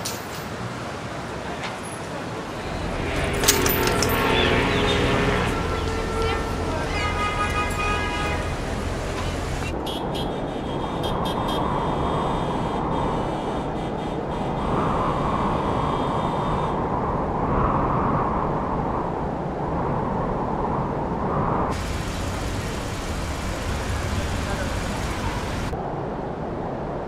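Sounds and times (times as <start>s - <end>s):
city traffic rumble: 0.0s - 27.0s.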